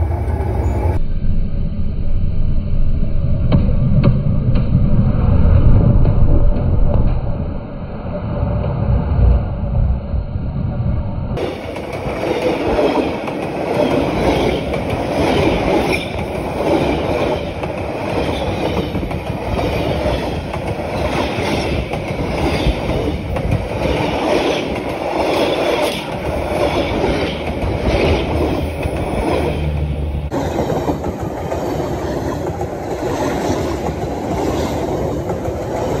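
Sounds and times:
train wheels clattering over rail joints: 11.4s - 36.0s.

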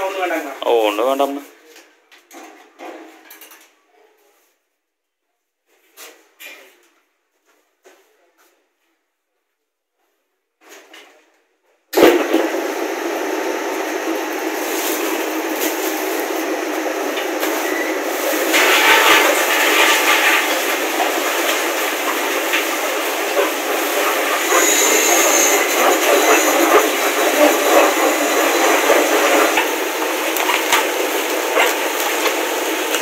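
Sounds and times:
mill machinery running loudly: 12.0s - 33.0s.

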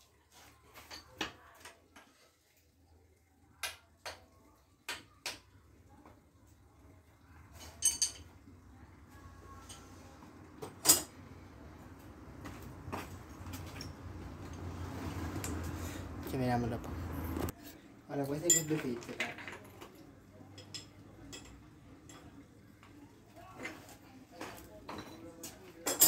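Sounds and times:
metallic clinks and knocks: 7.6s - 8.4s, 12.9s - 15.8s, 18.4s - 22.4s.

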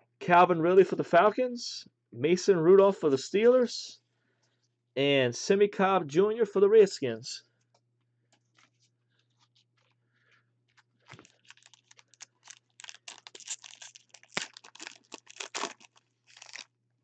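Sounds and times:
foil wrapper crinkling: 10.7s - 16.7s.

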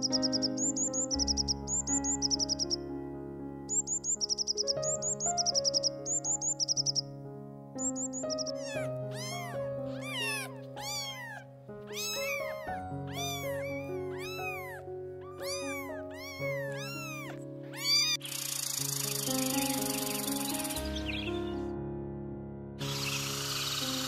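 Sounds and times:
background music with held notes: 0.0s - 24.0s
cat meowing: 7.9s - 20.2s.

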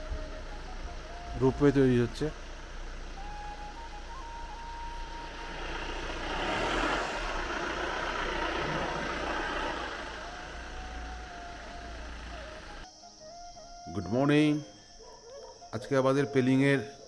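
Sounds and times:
motor vehicle passing: 0.0s - 12.8s.

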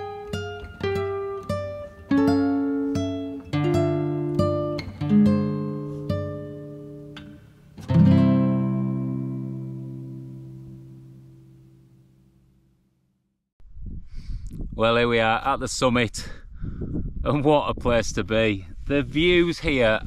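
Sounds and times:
acoustic guitar picking: 0.0s - 12.6s
guitar chord ringing: 0.0s - 12.8s.

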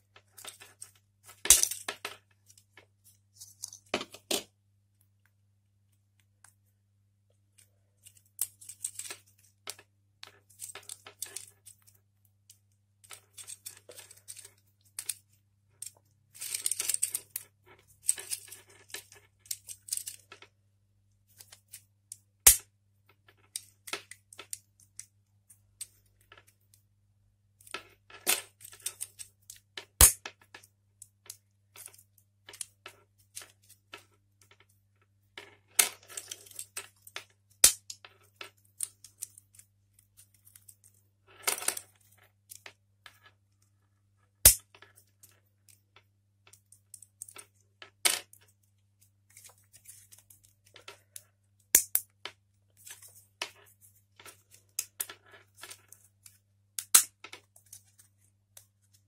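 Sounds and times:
plastic clicks and snaps: 56.2s - 57.4s.

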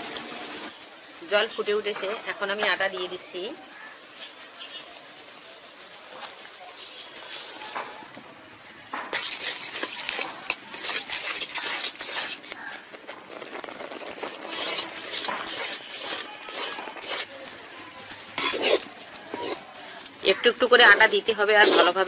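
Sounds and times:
metal spatula scraping metal pan: 9.1s - 12.5s, 14.3s - 17.5s, 18.1s - 19.8s, 20.8s - 22.0s.

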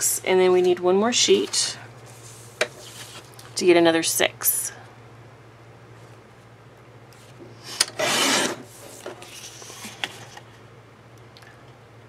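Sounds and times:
paper rustling: 2.1s - 3.5s.

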